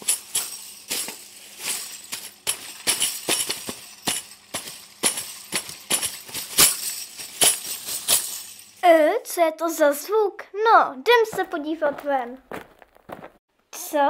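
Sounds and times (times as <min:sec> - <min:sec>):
metallic clinks and jingles: 0:00.0 - 0:08.8.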